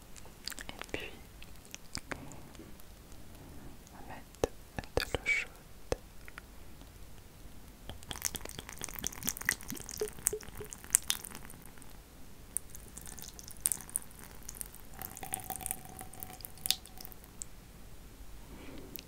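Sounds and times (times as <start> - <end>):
water dripping: 7.9 - 11.5, 12.6 - 17.5.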